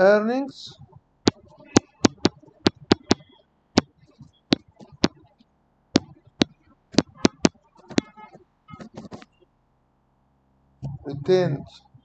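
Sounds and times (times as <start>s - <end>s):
stylus tapping on tablet screen: 1.3s - 5.3s, 6.0s - 9.3s.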